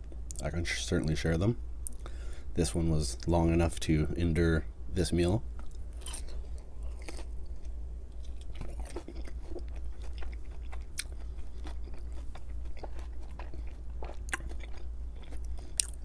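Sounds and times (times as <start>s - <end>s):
steady low hum: 0.0s - 16.0s
chewing soft food: 5.6s - 16.0s.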